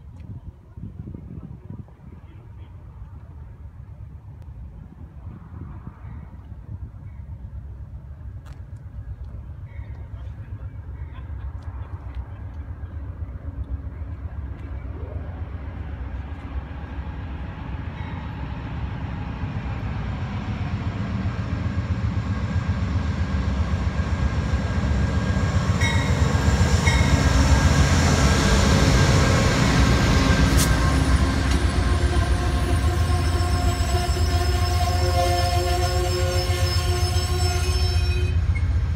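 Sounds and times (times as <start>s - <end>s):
diesel locomotive rumble: 0.0s - 38.9s
train wheels rolling: 16.0s - 38.9s
wheels and brakes squealing: 30.5s - 38.8s.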